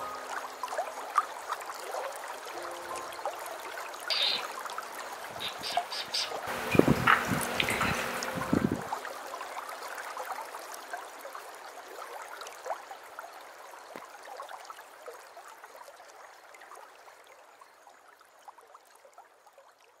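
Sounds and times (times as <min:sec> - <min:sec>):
small splashes: 0:00.0 - 0:12.8
water trickling and dripping: 0:00.0 - 0:20.0.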